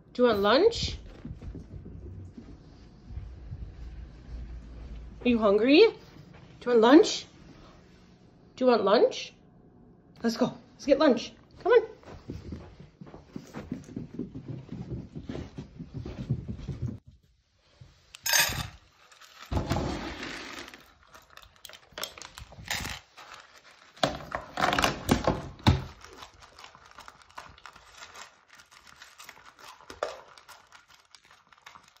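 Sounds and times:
puppy crunching kibble: 0:18.9 - 0:32.0.

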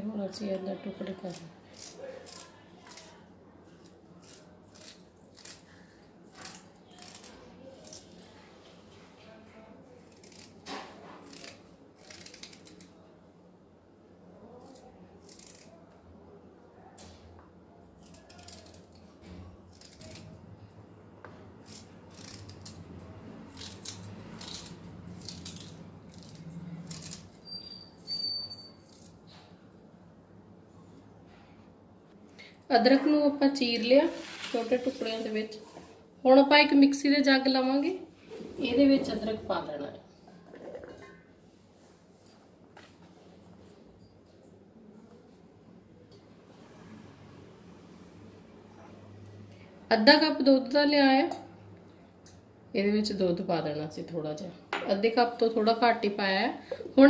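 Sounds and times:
knife cutting ginger: 0:01.3 - 0:03.2, 0:10.0 - 0:12.9, 0:14.6 - 0:15.8, 0:18.0 - 0:20.4, 0:21.6 - 0:27.6.

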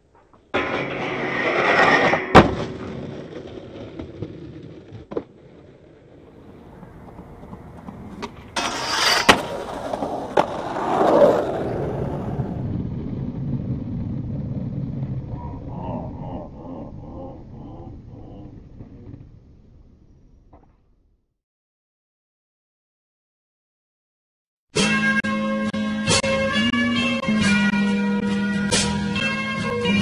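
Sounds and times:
skateboard wheels rolling on pavement: 0:00.0 - 0:15.7
skateboard clacking on ground: 0:03.1 - 0:12.4.

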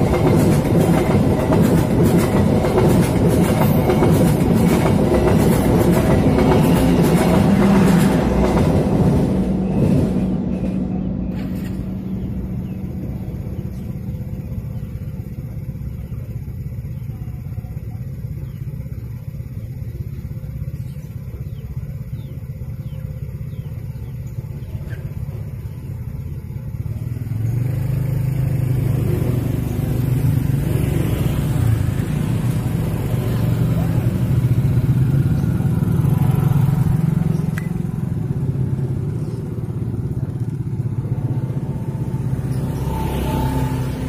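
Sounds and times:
steady low rumble: 0:00.0 - 0:26.9, 0:31.3 - 0:42.8
motorcycles riding past: 0:24.8 - 0:44.0.

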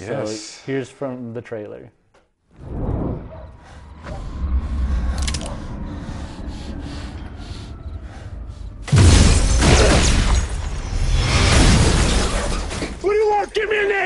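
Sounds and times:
low rumbling film score: 0:02.5 - 0:14.0
loud crash: 0:08.8 - 0:13.0.

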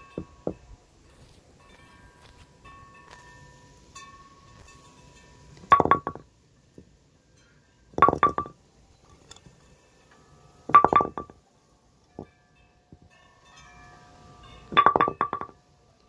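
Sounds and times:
bowling pin dropped on concrete: 0:05.6 - 0:06.2, 0:08.0 - 0:08.6, 0:10.7 - 0:11.4, 0:14.7 - 0:15.6.

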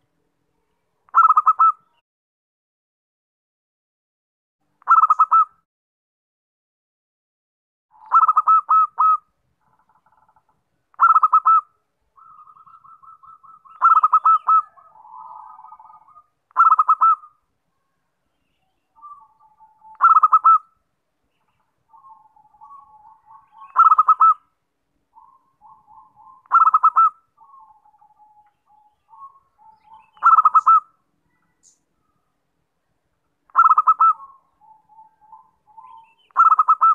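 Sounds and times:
dove cooing: 0:01.1 - 0:01.9, 0:04.9 - 0:05.5, 0:07.9 - 0:09.3, 0:11.0 - 0:17.4, 0:19.0 - 0:20.7, 0:21.9 - 0:24.4, 0:25.2 - 0:30.9, 0:33.5 - 0:36.9.

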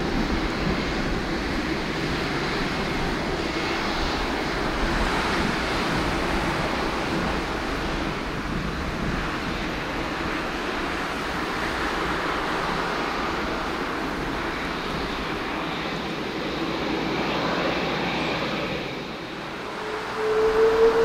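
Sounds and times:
jet engines at takeoff: 0:00.0 - 0:21.0
loud steady single tone: 0:19.5 - 0:21.0.

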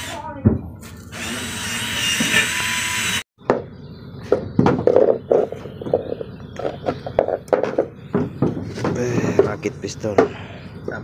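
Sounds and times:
power tool whirring: 0:00.0 - 0:00.2, 0:01.0 - 0:03.3
knocks on wooden planks: 0:03.4 - 0:09.6.

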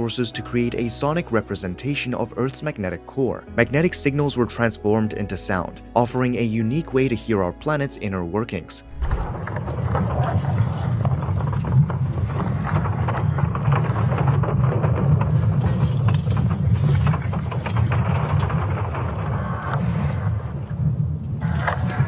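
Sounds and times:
scattered crackles: 0:08.5 - 0:22.0
deep steady rumble: 0:08.8 - 0:09.7.

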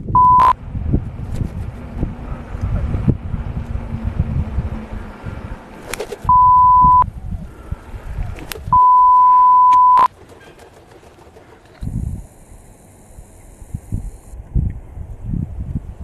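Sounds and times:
censor beeps: 0:00.0 - 0:00.6, 0:06.3 - 0:07.1, 0:08.7 - 0:10.1
wind rumble on microphone: 0:00.0 - 0:09.0, 0:11.8 - 0:12.6, 0:13.2 - 0:16.0.

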